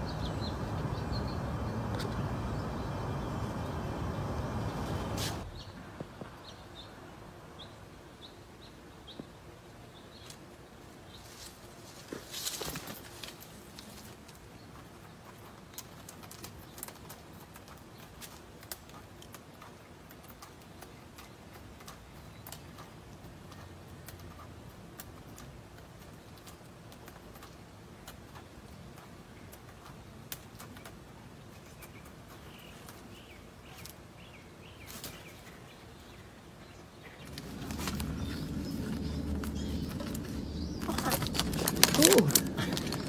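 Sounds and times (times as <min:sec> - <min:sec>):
footsteps in dry leaves: 0:37.2 - 0:43.0.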